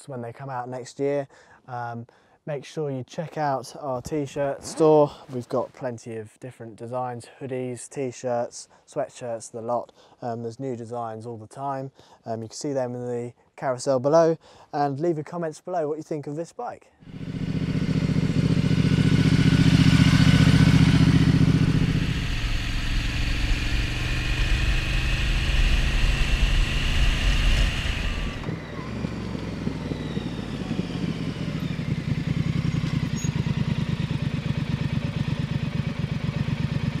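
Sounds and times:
motorcycle engine passing: 17.0s - 37.0s
motorcycle engine idling: 17.1s - 37.0s.

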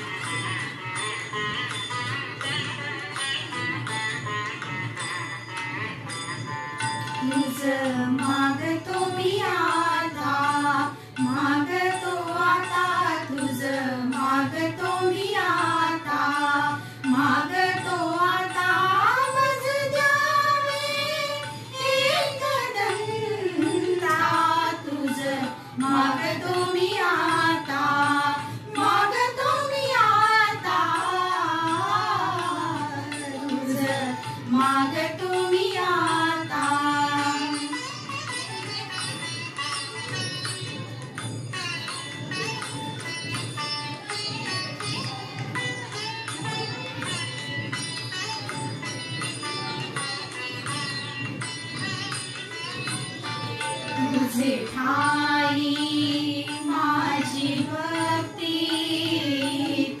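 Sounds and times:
women singing in unison: 7.2s - 37.8s, 54.0s - 60.0s.

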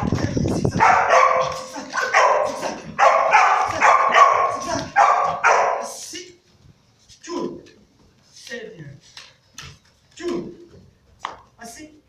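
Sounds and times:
puppies barking: 0.7s - 6.0s.

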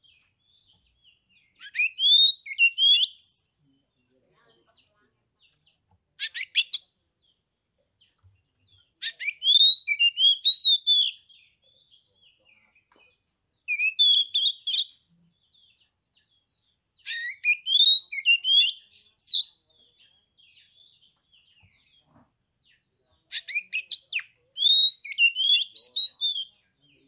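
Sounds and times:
bird singing whistled notes: 0.0s - 3.6s, 9.0s - 12.0s, 13.7s - 16.4s, 17.0s - 19.6s, 23.3s - 27.0s.

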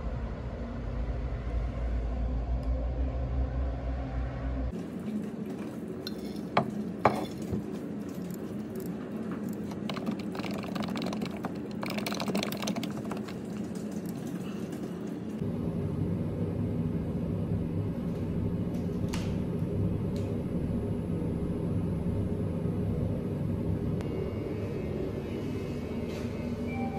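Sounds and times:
steady low hum: 0.0s - 26.9s
typing on computer keyboard: 9.6s - 15.1s.

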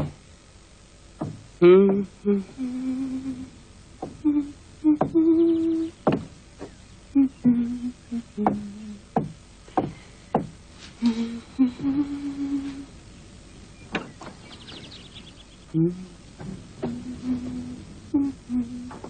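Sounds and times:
sharp knocks: 1.2s - 2.0s, 6.0s - 6.8s, 8.4s - 10.6s, 13.9s - 14.8s
woman humming: 1.6s - 6.2s, 7.1s - 9.2s, 11.0s - 13.0s, 15.7s - 19.0s.

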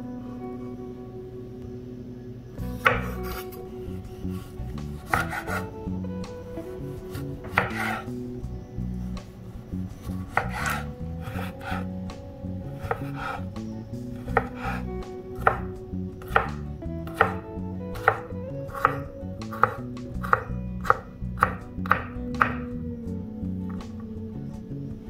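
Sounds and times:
knife chopping on wooden board: 2.8s - 3.4s, 5.0s - 5.6s, 7.4s - 8.1s, 10.3s - 11.8s, 12.8s - 13.4s, 14.2s - 14.8s, 15.4s - 15.7s, 16.3s - 17.4s, 18.0s - 22.6s.

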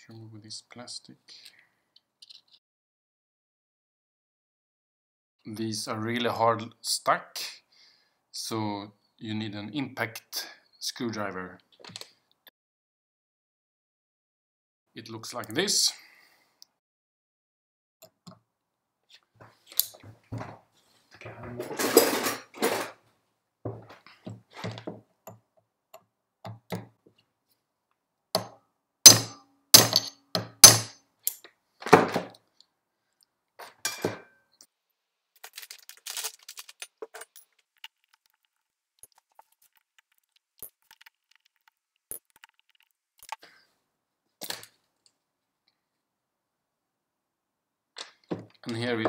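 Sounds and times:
hammer striking metal screwdriver: 29.1s - 31.0s
metal parts clinking: 29.1s - 31.4s, 35.4s - 38.4s.

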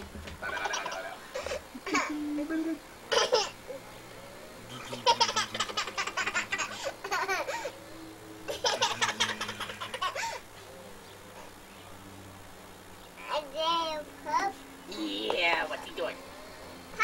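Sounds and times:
toddler giggling: 0.5s - 3.8s, 4.7s - 7.8s, 8.5s - 10.4s.

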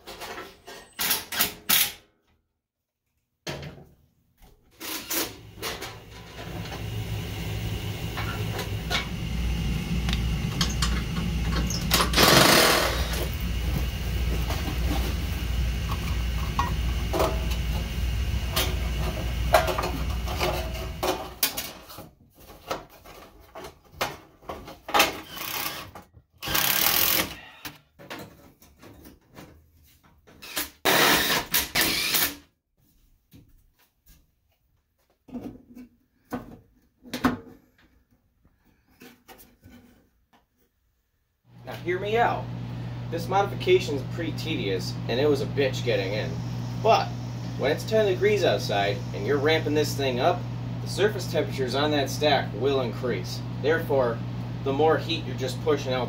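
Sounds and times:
cordless drill running: 6.8s - 19.5s, 25.2s - 27.5s, 30.4s - 32.4s.

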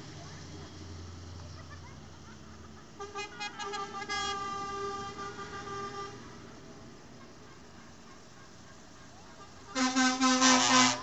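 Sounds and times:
passing engine running: 0.0s - 11.0s
vehicle horn tooting: 3.0s - 6.2s, 9.3s - 11.0s.

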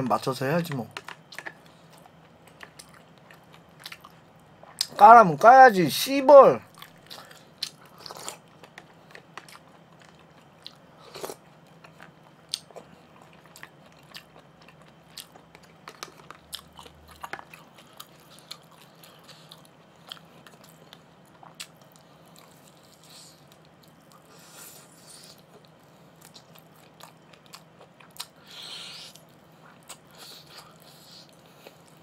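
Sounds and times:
person chewing: 0.9s - 5.0s, 6.7s - 32.0s.

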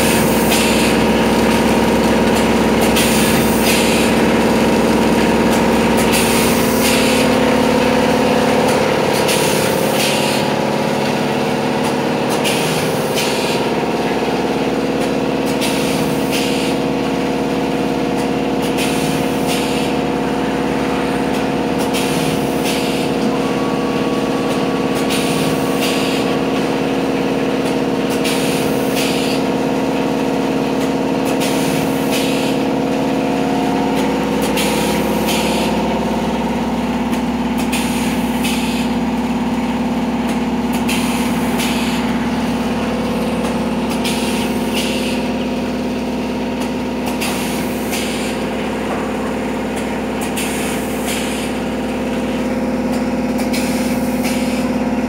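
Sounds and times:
pneumatic air hisses: 0.0s - 1.0s, 2.4s - 4.2s, 6.0s - 7.4s, 9.2s - 10.5s, 11.8s - 13.6s, 15.4s - 16.9s, 18.6s - 20.1s, 21.8s - 23.2s, 25.0s - 26.3s, 28.1s - 29.4s, 31.2s - 32.6s, 34.4s - 35.8s, 37.1s - 39.0s, 40.3s - 42.5s, 43.6s - 45.2s, 47.0s - 48.5s, 50.2s - 51.7s, 52.3s - 54.7s
packing machine humming: 0.0s - 55.0s.

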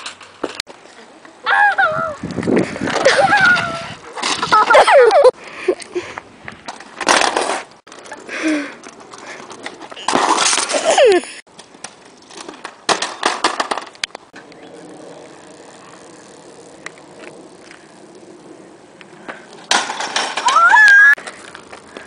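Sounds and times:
scooter wheels rattling on asphalt: 1.6s - 22.0s
bike tyres rolling on road: 6.0s - 22.0s
bike crashing into boxes: 10.0s - 11.0s, 19.7s - 20.8s.

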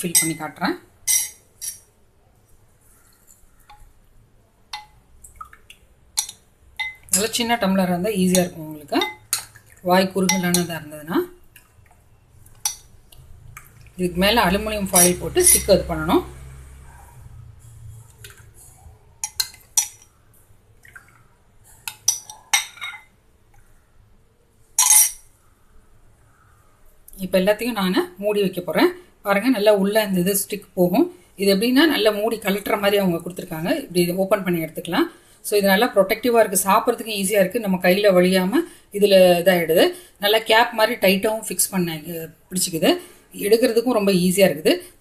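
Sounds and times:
metal ladle clinking glass bowl: 0.1s - 1.9s, 6.2s - 7.6s, 8.2s - 10.9s, 12.5s - 12.9s, 14.8s - 15.8s, 19.2s - 20.1s, 21.9s - 23.1s, 24.8s - 25.2s
liquid drips: 4.7s - 7.4s, 8.3s - 14.2s, 18.0s - 22.6s.

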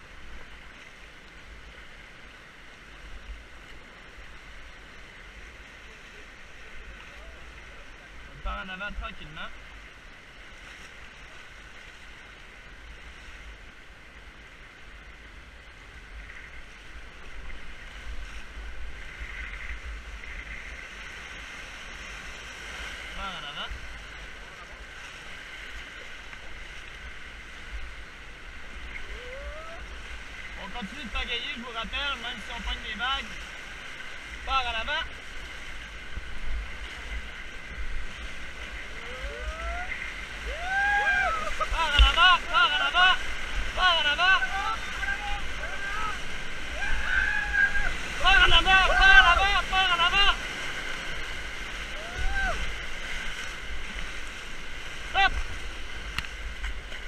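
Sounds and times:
rushing whitewater rapids: 0.0s - 57.0s
person calling out: 29.0s - 29.9s, 39.0s - 43.2s
wind rumble on microphone: 50.5s - 57.0s.

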